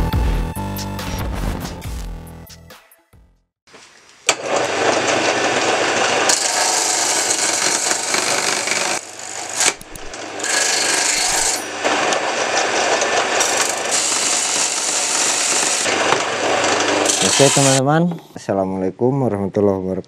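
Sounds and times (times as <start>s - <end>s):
circular saw cutting wood: 4.6s - 17.8s.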